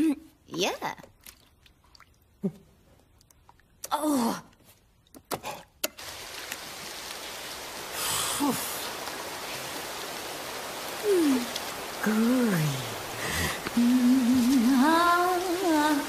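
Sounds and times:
shower spray hissing: 6.0 - 16.0.

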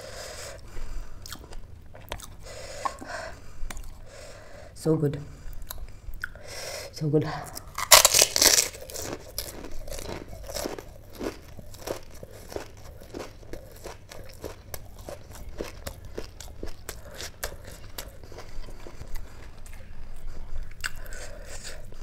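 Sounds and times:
person chewing crunchy food: 0.5 - 4.1, 7.4 - 22.0
crisp shell crunching: 7.7 - 19.2.

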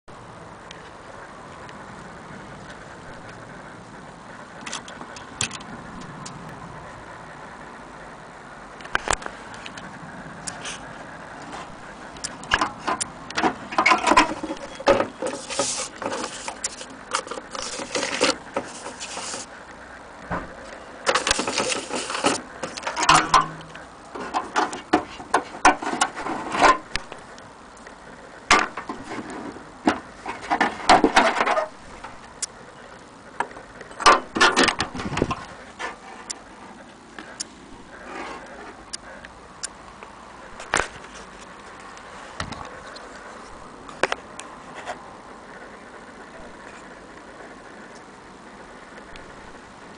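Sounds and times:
rustling and scraping: 8.8 - 27.3, 28.5 - 32.3, 33.4 - 39.2, 40.6 - 45.7.

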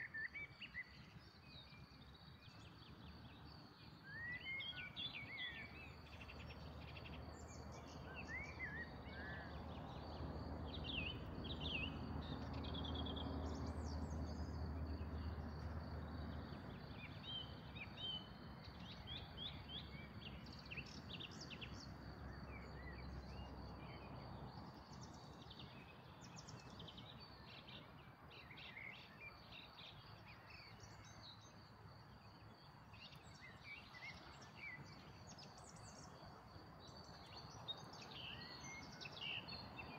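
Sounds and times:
small birds chirping: 24.6 - 39.9.

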